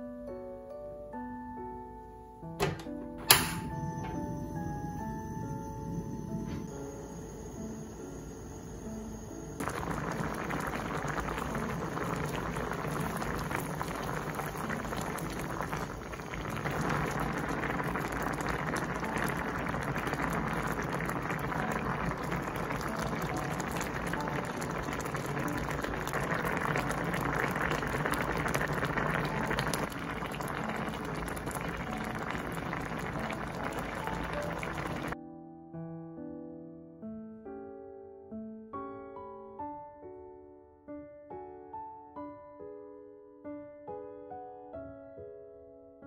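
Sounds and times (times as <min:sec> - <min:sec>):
broth bubbling at a boil: 0:04.0 - 0:35.2.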